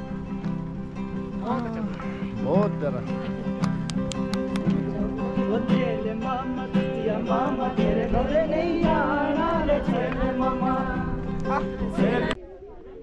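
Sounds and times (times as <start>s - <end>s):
guitar accompaniment: 0.0s - 12.4s
person singing: 4.8s - 12.4s.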